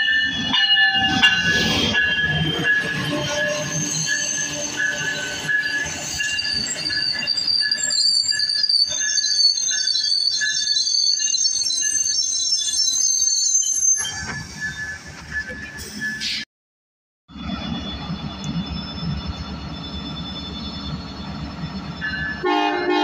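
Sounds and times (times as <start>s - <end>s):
train cars rumbling: 0.0s - 12.4s, 13.7s - 16.4s, 17.3s - 23.0s
high metallic squeal: 0.2s - 16.4s.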